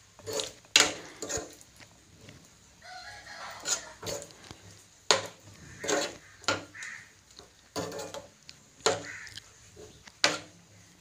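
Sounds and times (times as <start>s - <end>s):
spatula scraping frying pan: 0.0s - 1.7s, 3.2s - 7.0s, 7.6s - 10.6s.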